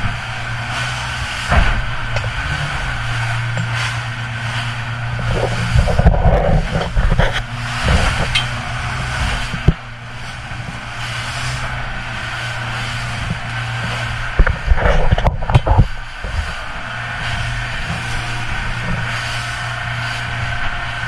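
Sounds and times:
hull pounding through seas: 0:00.0 - 0:21.0
outboard motor droning: 0:00.0 - 0:21.0
spray crashing against hull: 0:00.0 - 0:21.0
sharp thump: 0:01.5 - 0:02.3.

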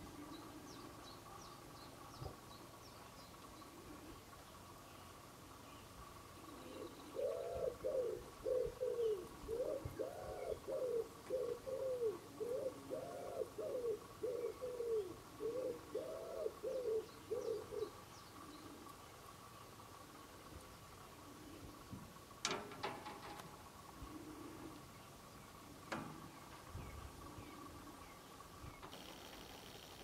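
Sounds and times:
pigeon cooing: 0:03.6 - 0:04.3, 0:06.4 - 0:19.0, 0:23.9 - 0:24.9.

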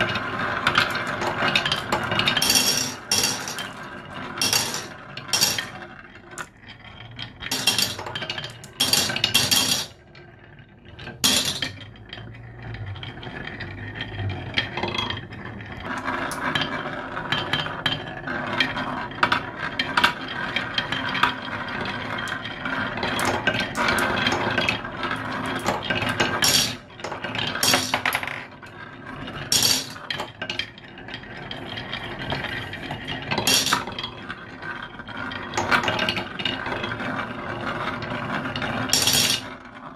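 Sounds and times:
marbles rolling on wooden track: 0:00.0 - 0:39.9
glass marbles clinking: 0:00.1 - 0:03.8, 0:04.4 - 0:05.8, 0:07.5 - 0:09.9, 0:26.3 - 0:26.8, 0:29.5 - 0:30.6, 0:33.3 - 0:34.1, 0:38.9 - 0:39.5.

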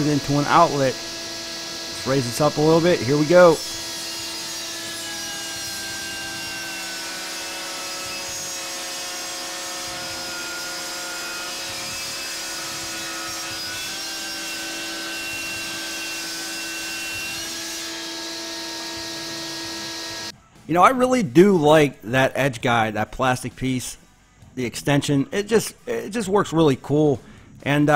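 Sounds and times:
saw blade cutting wood: 0:00.0 - 0:20.3
table saw motor whine: 0:00.0 - 0:20.3.

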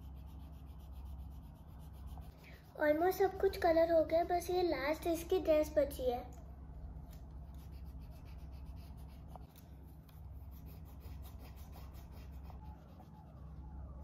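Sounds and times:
colouring strokes scratching on paper: 0:00.0 - 0:03.8, 0:07.4 - 0:14.0
steady low hum: 0:00.0 - 0:14.0.

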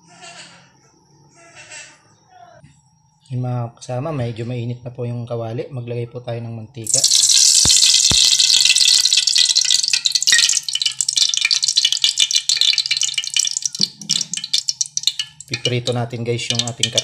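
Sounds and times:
oil sizzling in a hot wok: 0:06.9 - 0:17.0.

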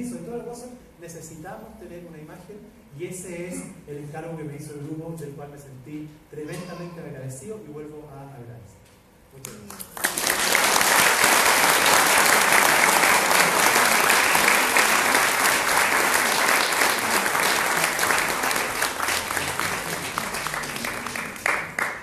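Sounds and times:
audience applauding: 0:09.6 - 0:22.0.

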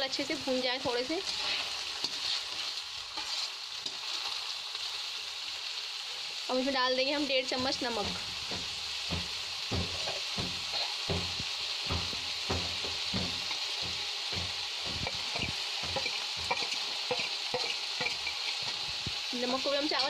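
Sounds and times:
rice sizzling in oil: 0:00.0 - 0:20.0
spatula scraping a pan: 0:00.8 - 0:04.4, 0:07.6 - 0:19.1.

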